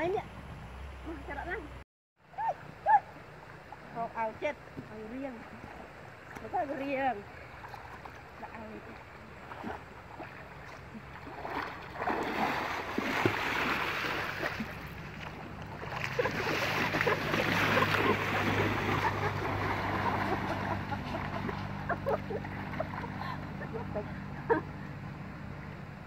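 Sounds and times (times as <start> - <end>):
low steady hum: 0.0 - 26.0
people splashing in water: 7.3 - 24.6.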